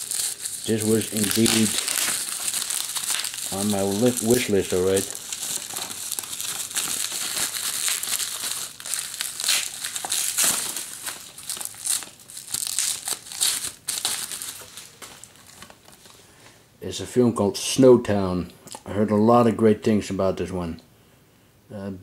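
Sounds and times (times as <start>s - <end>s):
bubble wrap crinkling: 0.0s - 16.2s.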